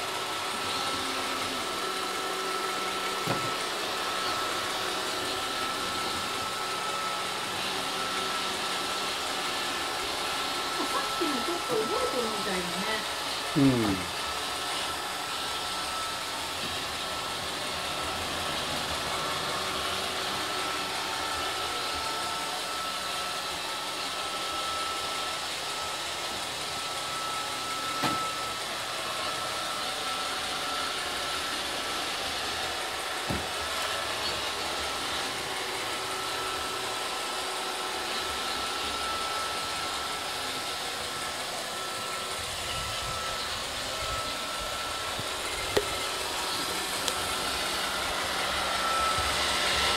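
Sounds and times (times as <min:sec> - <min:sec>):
robot vacuum whirring: 0:00.0 - 0:49.9.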